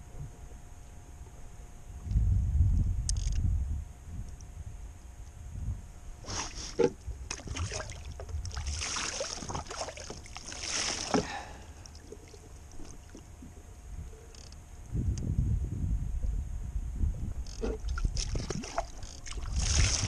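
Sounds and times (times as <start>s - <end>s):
low rumble: 1.7s - 6.3s, 11.3s - 18.7s
small clicks and knocks: 3.1s - 3.4s
hands splashing in water: 6.3s - 11.3s, 17.9s - 20.0s.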